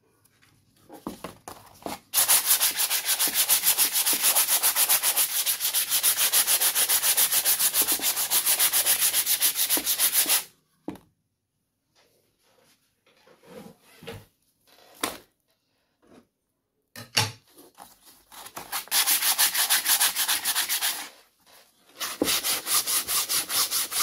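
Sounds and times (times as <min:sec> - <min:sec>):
sandpaper rubbing on canvas: 0:02.2 - 0:10.5, 0:18.3 - 0:21.1, 0:22.0 - 0:24.0.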